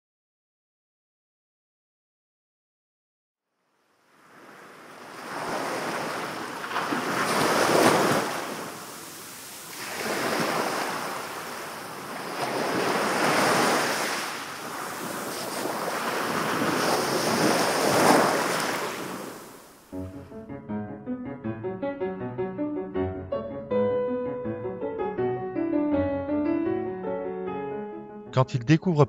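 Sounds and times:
waves breaking on sand: 4.1 - 19.9.

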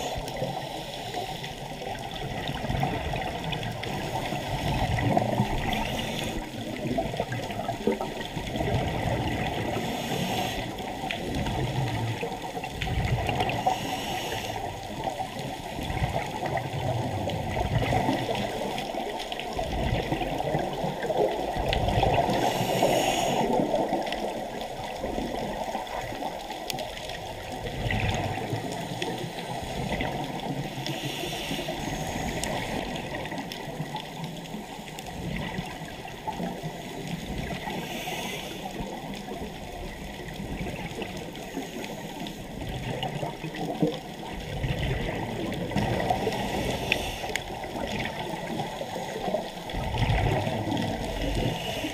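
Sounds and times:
regulator breathing hiss: 0.0 - 1.8, 5.6 - 6.5, 9.7 - 10.9, 13.5 - 14.8, 22.3 - 23.7, 30.7 - 32.9, 37.6 - 39.0, 46.2 - 47.5, 51.2 - 51.9
exhaled bubbles: 0.0 - 51.9
muffled underwater rushing: 0.0 - 51.9.

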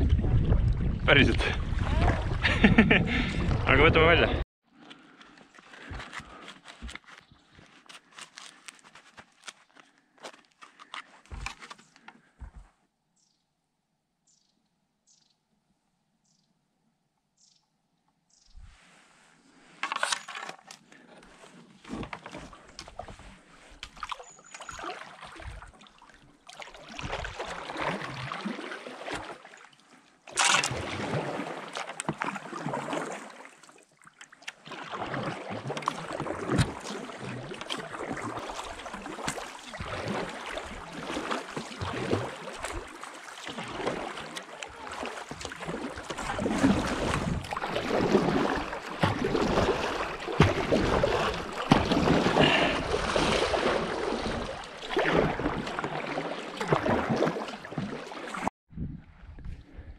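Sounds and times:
paddle splashing in water: 0.0 - 3.8, 19.8 - 58.5
water washing along a hull: 0.0 - 4.4, 21.2 - 58.5.

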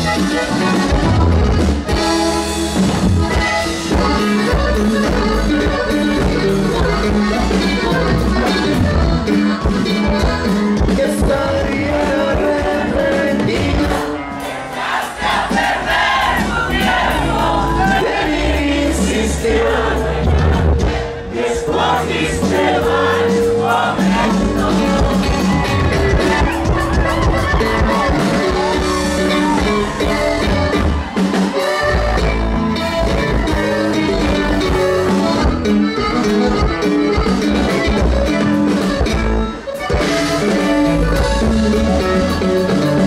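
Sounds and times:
crowd voices: 0.0 - 43.0
live band playing: 0.0 - 43.0
person singing: 10.3 - 14.2, 21.3 - 30.8.

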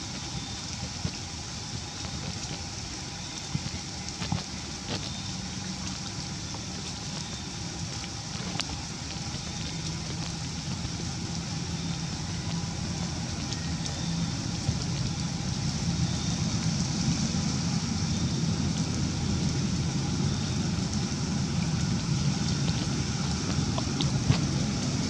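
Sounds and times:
faint ticks: 1.9 - 15.4.

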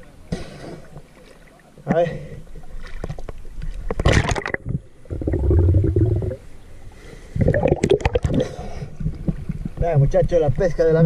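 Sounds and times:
water splashing and gurgling: 2.6 - 6.6, 7.3 - 9.9
muffled underwater rumble: 3.4 - 10.7.

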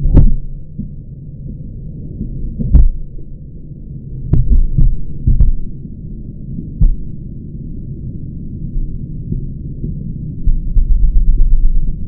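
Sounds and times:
steady low rumble: 0.0 - 12.0
muffled dull thumps: 2.6 - 3.0, 4.3 - 5.7, 6.8 - 7.0, 10.5 - 11.8.

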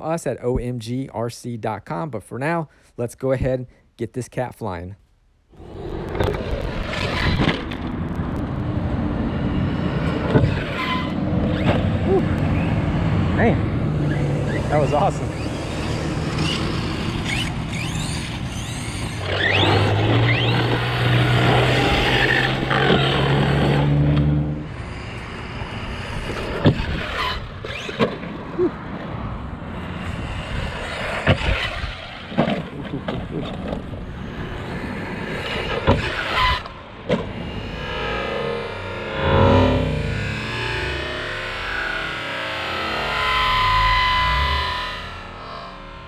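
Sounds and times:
electric motor whine: 8.7 - 28.1, 33.8 - 46.0.

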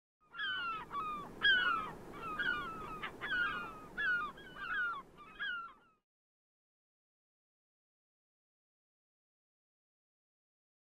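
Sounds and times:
gulls calling: 0.3 - 6.0.

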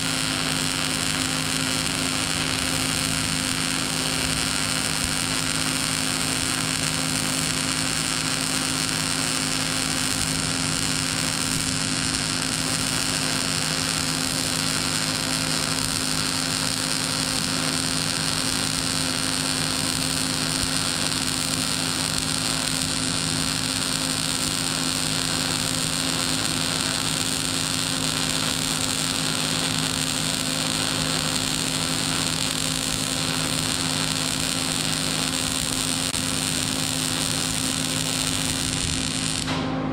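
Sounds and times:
welder arc hissing: 0.0 - 39.6.

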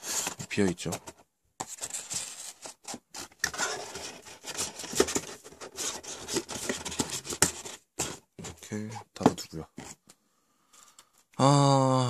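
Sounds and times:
cardboard rubbing and clicking: 0.0 - 8.6.

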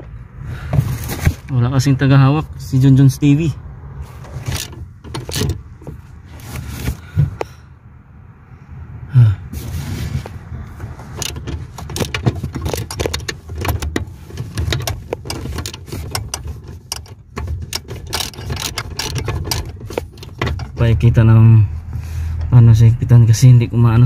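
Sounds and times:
phone handling rumble: 4.2 - 7.6, 10.8 - 21.2
wrench clicking on metal: 14.6 - 20.8.

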